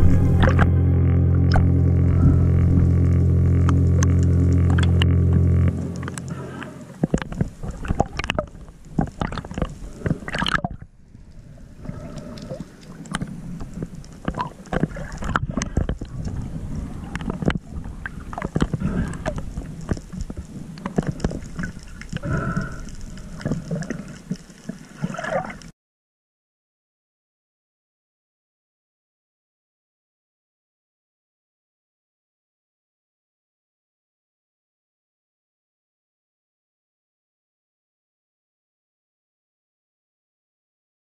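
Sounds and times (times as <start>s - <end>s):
underwater gurgling: 0.0s - 25.7s.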